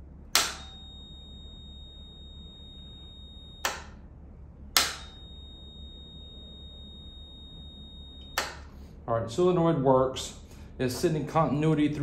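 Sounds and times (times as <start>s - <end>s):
solenoid clicking: 0.3s - 0.8s, 3.6s - 4.0s, 4.7s - 5.2s, 8.2s - 8.7s
multimeter continuity beep: 0.4s - 4.1s, 4.7s - 8.8s.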